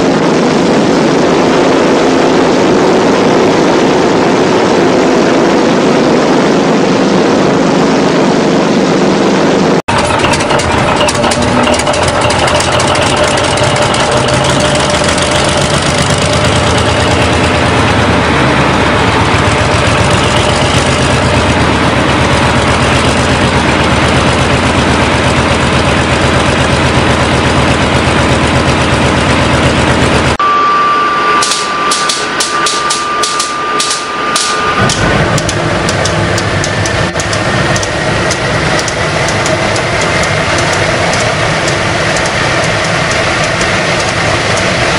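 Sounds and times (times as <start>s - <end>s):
diesel engine running: 0.0s - 44.9s
turbojet starting whine: 0.0s - 44.9s
igniter ticks: 31.4s - 44.8s.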